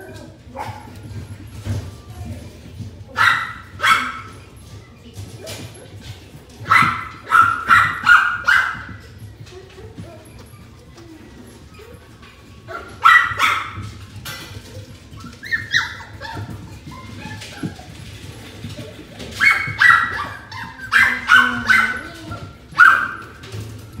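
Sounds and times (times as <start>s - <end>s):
puppies yipping and barking: 0.0s - 24.0s.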